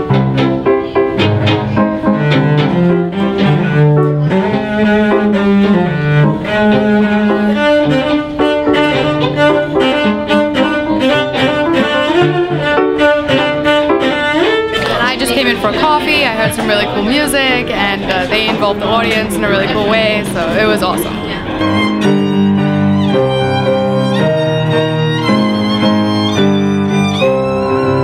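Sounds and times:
cello bowed: 0.0 - 28.0.

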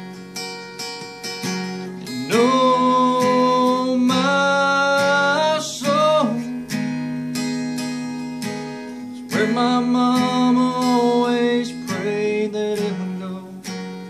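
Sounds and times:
acoustic guitar strumming: 0.0 - 14.0
man singing: 2.0 - 6.8, 9.1 - 14.0.

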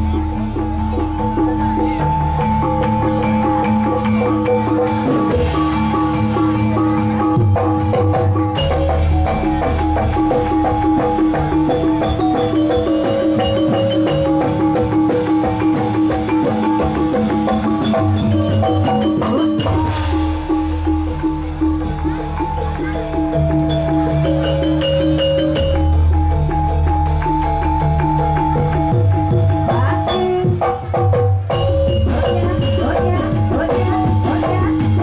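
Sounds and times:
metal mallet instruments melody: 0.0 - 35.0
steady drumming: 0.0 - 35.0.

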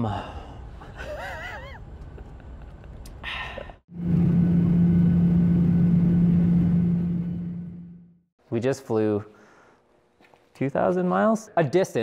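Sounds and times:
engine droning: 3.9 - 8.2.

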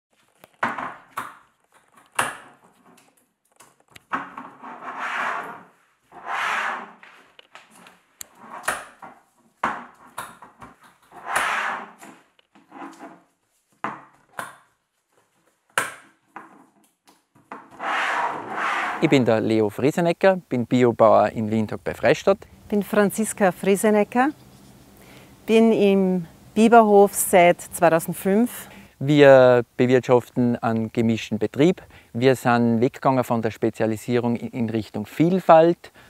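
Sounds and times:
scraping and rubbing: 3.8 - 13.6, 17.4 - 19.3.

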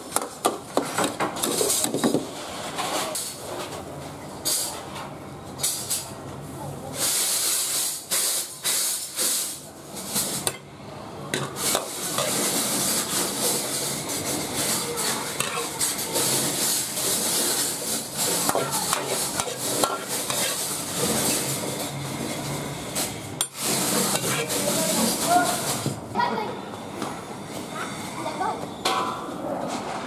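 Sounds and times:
metal ladle scraping a wok: 11.4 - 25.8.

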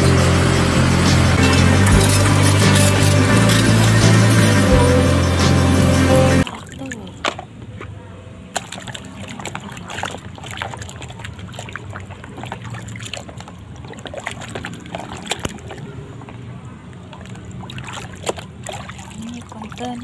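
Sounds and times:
soapy water splashing: 0.0 - 20.0.

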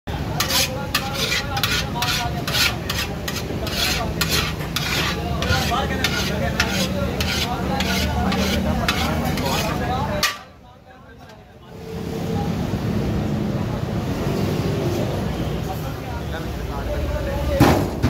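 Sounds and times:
rice scraping against metal: 0.3 - 10.4.

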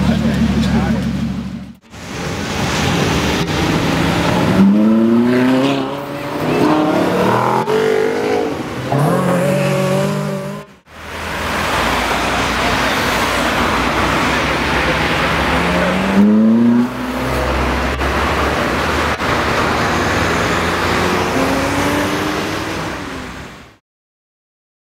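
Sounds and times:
car engine accelerating hard: 0.0 - 23.5
car engine steady rush: 0.0 - 23.8.

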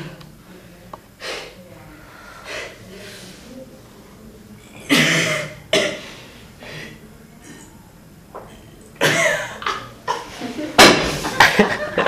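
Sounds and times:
man coughing: 9.0 - 10.2.

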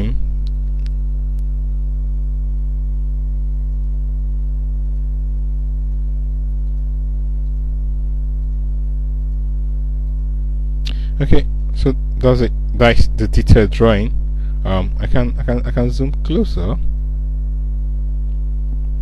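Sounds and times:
electrical mains hum: 0.0 - 19.0
faint clicks: 6.4 - 7.6, 10.0 - 11.0.

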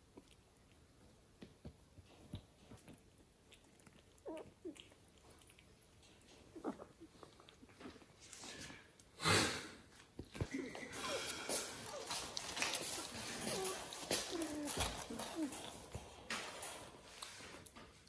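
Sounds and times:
taps and rustles of gift bag: 10.2 - 18.0.

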